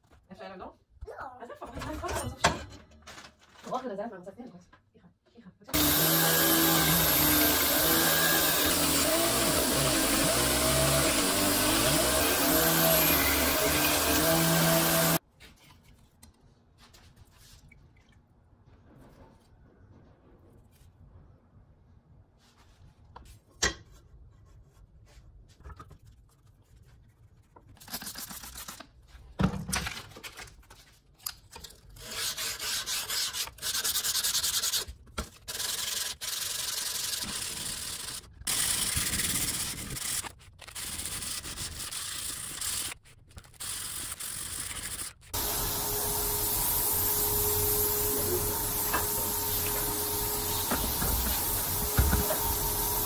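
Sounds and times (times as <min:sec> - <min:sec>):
sanding steel blade: 0:05.8 - 0:15.2, 0:32.0 - 0:34.9, 0:43.6 - 0:53.0
steady hiss: 0:45.4 - 0:53.0.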